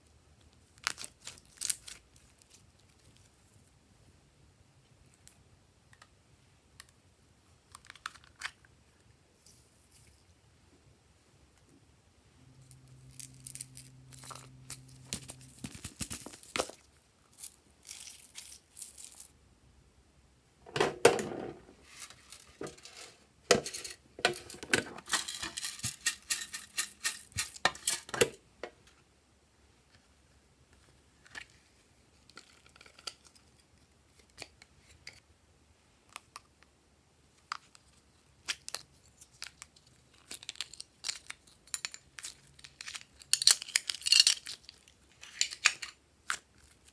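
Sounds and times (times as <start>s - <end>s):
low steady hum: 8.4s - 32.6s.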